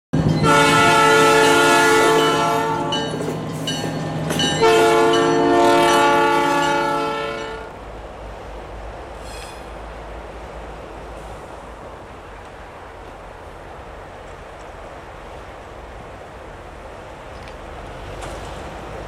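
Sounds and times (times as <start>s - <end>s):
locomotive horn blasts: 0.4s - 3.2s, 4.6s - 7.8s.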